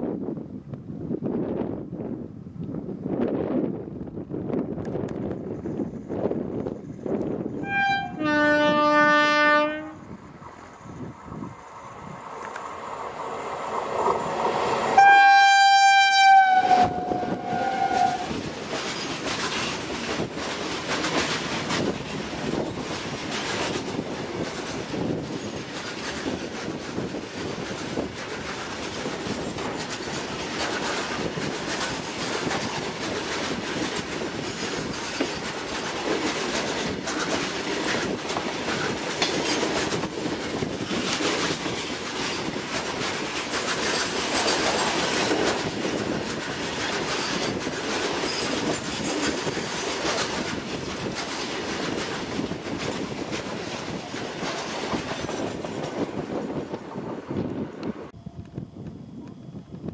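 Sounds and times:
train rolling rumble: 0.0s - 59.9s
train wheels clattering over joints: 16.9s - 57.0s.

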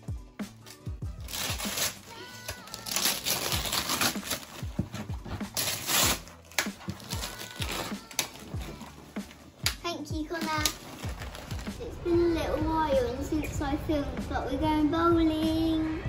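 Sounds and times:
background music with steady beat: 0.0s - 16.0s
tissue paper crinkling: 1.2s - 9.6s, 10.3s - 11.8s.

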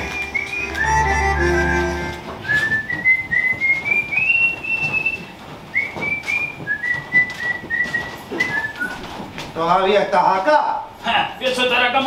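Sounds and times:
person whistling a tune: 0.0s - 9.0s.

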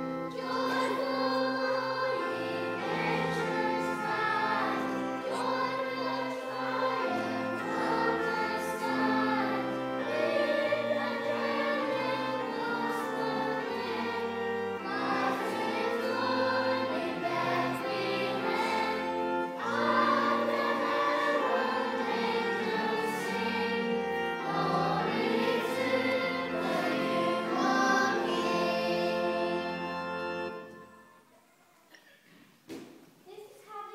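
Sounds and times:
held low accompaniment notes: 0.0s - 31.0s
children's choir singing: 0.0s - 31.3s.

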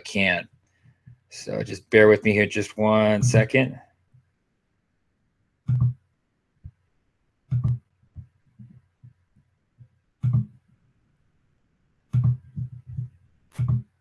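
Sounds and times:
short thumps with clicks: 3.1s - 3.6s, 9.8s - 10.6s.

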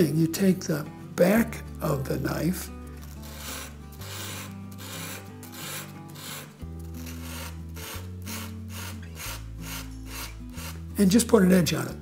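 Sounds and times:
blade rasping on sandpaper: 3.0s - 10.9s.

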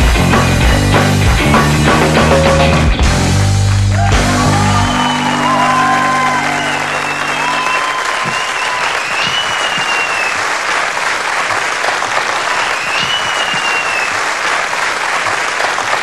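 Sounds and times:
band chord: 0.0s - 8.1s
audience applauding: 3.3s - 16.0s
long whistles: 4.7s - 10.4s, 12.5s - 14.2s.

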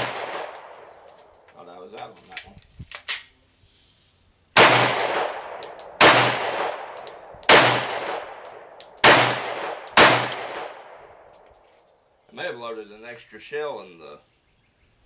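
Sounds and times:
pistol shots with echo: 0.0s - 1.1s, 4.6s - 11.2s
faint metallic clinks: 1.0s - 2.0s, 10.7s - 12.2s.

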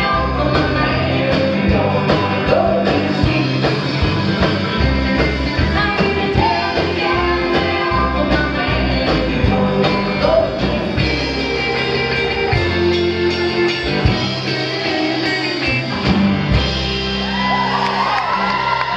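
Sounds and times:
woman singing: 0.0s - 4.0s, 5.6s - 13.4s
guitar: 0.0s - 18.9s
upright bass: 0.0s - 18.9s.

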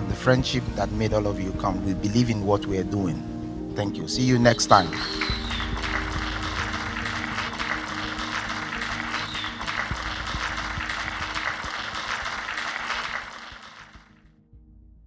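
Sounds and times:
background music: 0.0s - 15.0s
audience applause: 4.9s - 14.2s.

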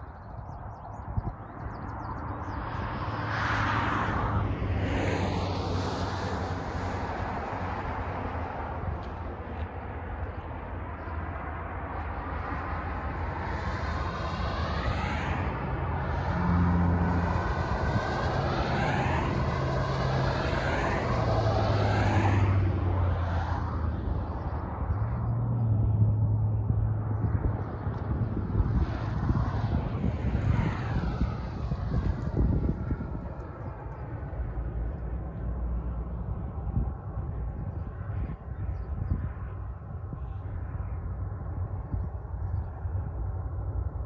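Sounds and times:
diesel locomotive engine drone: 2.4s - 44.0s
rushing noise: 10.0s - 24.9s, 26.9s - 37.2s.

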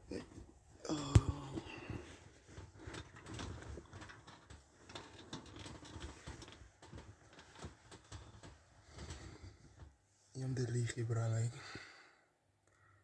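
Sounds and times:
small irregular clicks: 1.1s - 10.0s.

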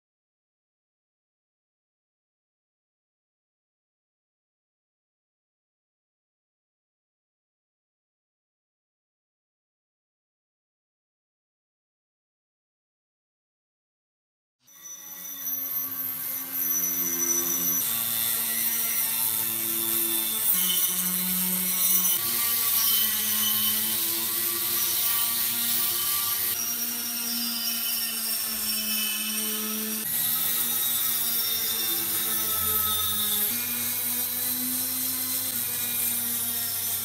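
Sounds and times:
small power tool grinding: 14.7s - 37.0s.

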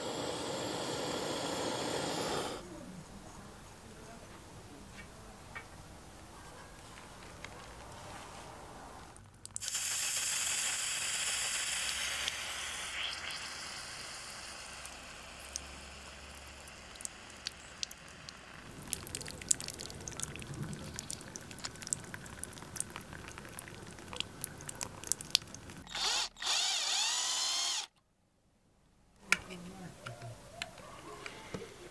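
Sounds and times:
electric drill whine: 0.0s - 2.6s, 25.9s - 27.9s
water running from a hose: 0.0s - 2.6s, 9.4s - 27.8s
small clicks and drips: 9.2s - 9.7s, 14.7s - 25.9s.

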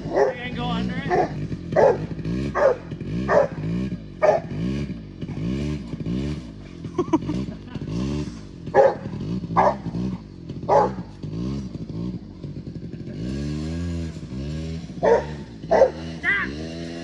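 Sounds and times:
dog barking: 0.0s - 3.6s, 4.2s - 4.6s, 8.7s - 10.0s, 10.7s - 11.1s, 15.0s - 16.1s
small quad engine revving: 0.0s - 17.0s.

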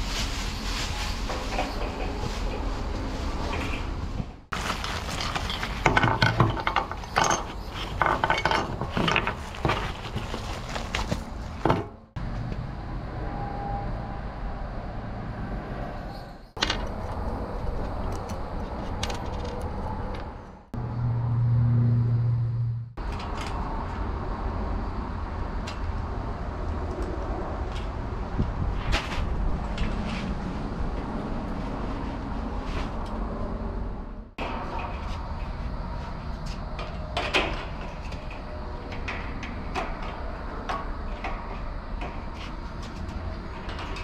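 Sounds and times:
plastic wrapping rustling: 0.0s - 11.6s.

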